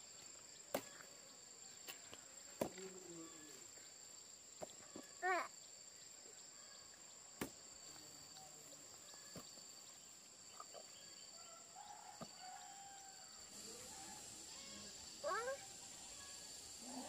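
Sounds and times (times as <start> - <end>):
faint chirps: 0.0 - 17.0
high-pitched insect drone: 7.9 - 17.0.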